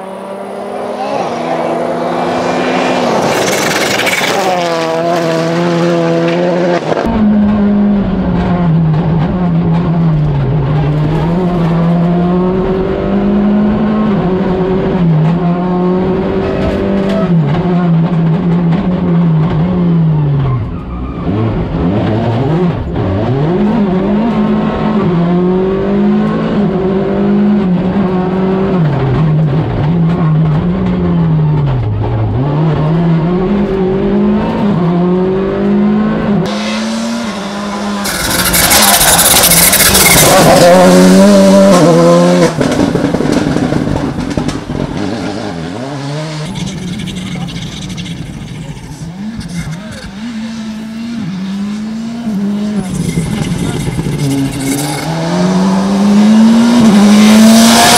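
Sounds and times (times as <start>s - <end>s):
rally car engine revving: 0.0s - 57.9s
tyres on gravel rushing: 37.8s - 40.8s.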